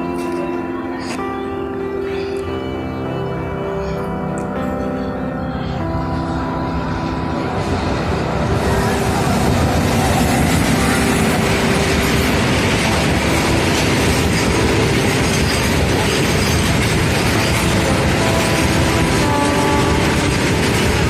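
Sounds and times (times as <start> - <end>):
freight train rumbling past: 4.8 - 21.0.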